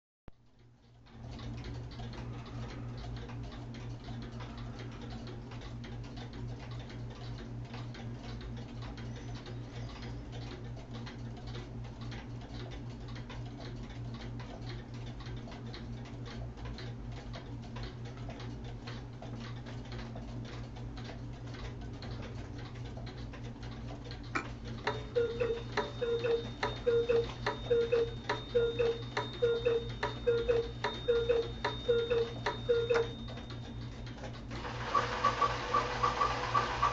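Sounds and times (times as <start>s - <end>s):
wall clocks ticking: 0.4s - 36.9s
loud mechanical pulse: 34.5s - 36.9s.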